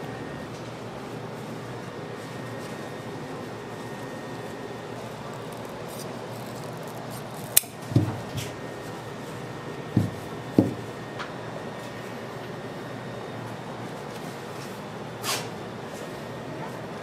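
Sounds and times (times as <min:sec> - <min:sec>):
knife and hard candy handled: 0:05.0 - 0:07.8
dull knocks on tabletop: 0:10.0 - 0:10.8.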